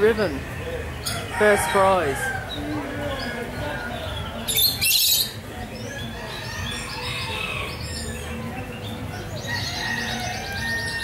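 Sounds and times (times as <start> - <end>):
birds chirping and calling: 0.0 - 11.0
rapid bird trill: 4.3 - 11.0.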